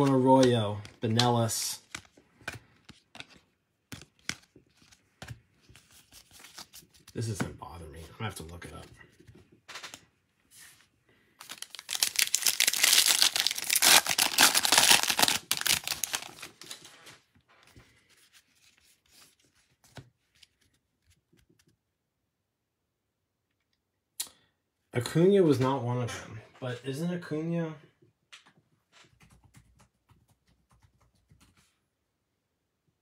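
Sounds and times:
cards tapping and sliding: 0.0s - 7.4s
foil wrapper crinkling and tearing: 11.4s - 17.1s.

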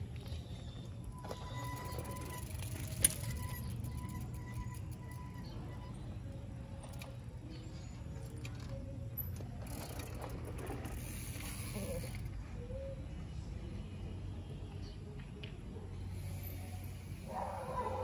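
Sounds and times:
low rumble of riding noise: 0.0s - 18.0s
bike freewheel hub clicking: 1.2s - 6.0s, 8.2s - 12.3s.

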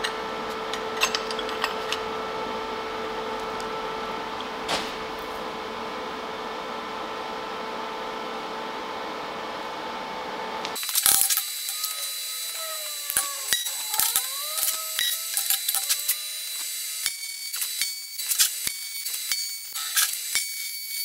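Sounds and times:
workshop hum: 0.0s - 21.0s
metal pieces clattering: 0.7s - 2.0s, 10.8s - 16.2s.

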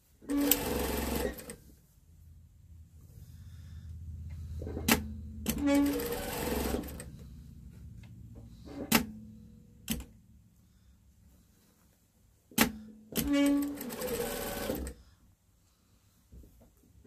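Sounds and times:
sewing machine stitching: 0.2s - 1.6s, 4.6s - 7.3s, 12.6s - 15.0s
low hum: 1.9s - 11.4s.

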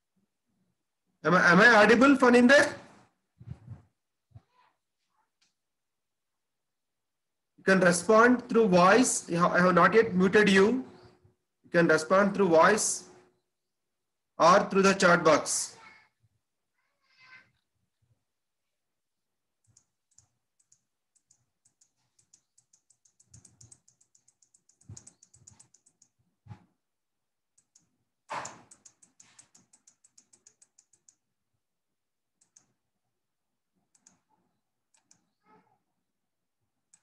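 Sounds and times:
typing on computer keyboard: 19.6s - 26.2s, 27.6s - 31.2s, 32.4s - 32.8s, 34.9s - 35.3s.

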